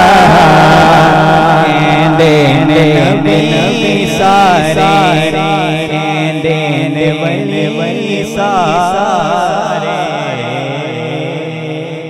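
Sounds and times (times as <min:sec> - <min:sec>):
man singing into a microphone: 0:00.0 - 0:12.0.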